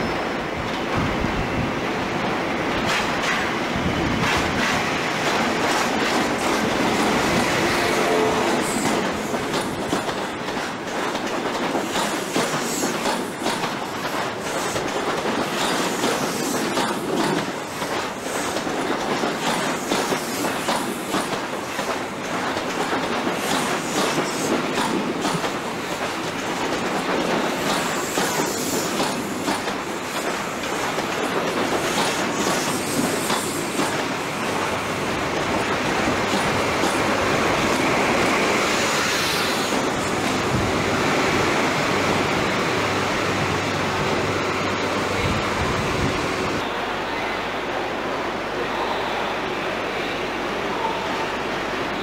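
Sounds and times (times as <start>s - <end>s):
train wheels clicking over rail joints: 2.7s - 42.2s.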